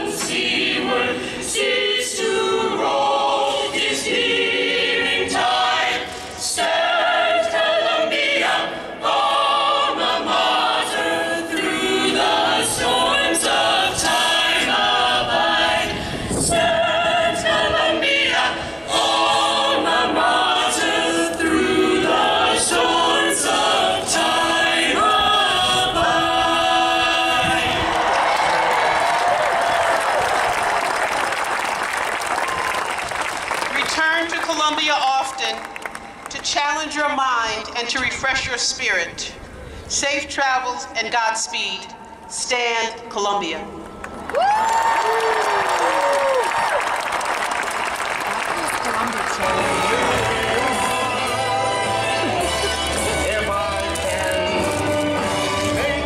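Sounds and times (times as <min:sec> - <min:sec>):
a cappella choir singing over loudspeakers: 0:00.0 - 0:28.2, 0:49.2 - 0:56.0.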